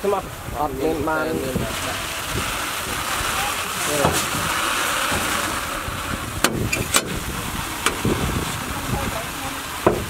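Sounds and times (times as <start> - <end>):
combine harvester running: 0.0 - 10.0
grain pouring into sack: 0.6 - 6.4
sharp knocks: 6.4 - 7.2.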